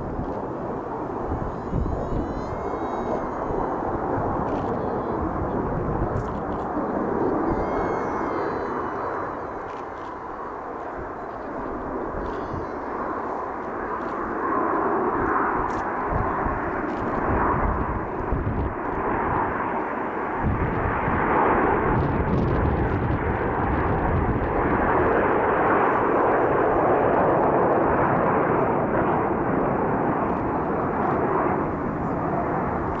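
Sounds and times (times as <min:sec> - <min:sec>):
gusty low rumble: 0:00.0 - 0:12.3, 0:15.1 - 0:19.7, 0:20.4 - 0:25.3
jet aircraft roaring overhead: 0:00.0 - 0:33.0.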